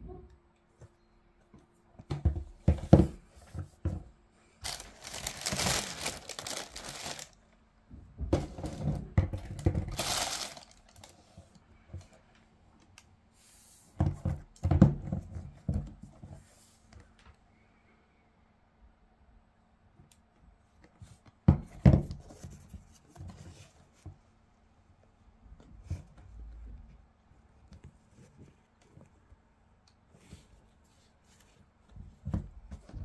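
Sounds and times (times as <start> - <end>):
tissue paper crinkling: 4.6 - 7.4, 9.9 - 11.4.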